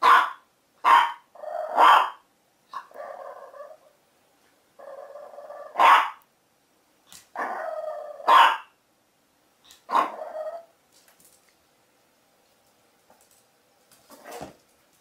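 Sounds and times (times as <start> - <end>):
puppy barking: 0.0 - 3.2, 5.6 - 6.2, 8.2 - 8.8, 9.9 - 10.6
puppy growling: 2.8 - 3.9, 4.8 - 5.8, 7.4 - 8.3, 9.9 - 10.7.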